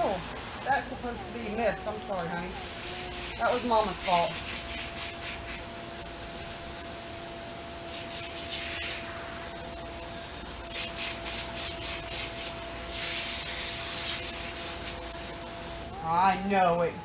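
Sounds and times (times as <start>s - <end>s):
hose nozzle spraying water: 2.2s - 5.7s, 10.7s - 15.5s.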